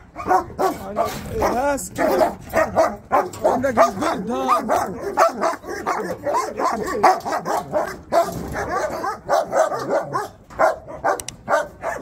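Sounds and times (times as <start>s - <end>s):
dogs barking: 0.0s - 12.0s
dogs whining: 4.5s - 12.0s.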